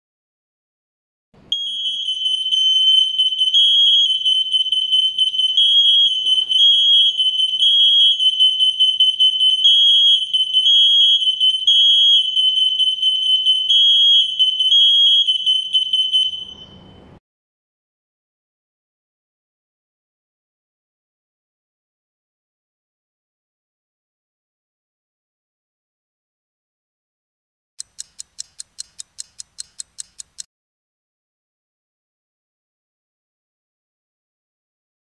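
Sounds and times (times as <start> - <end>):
shrill smoke alarm beeps: 1.5 - 17.2.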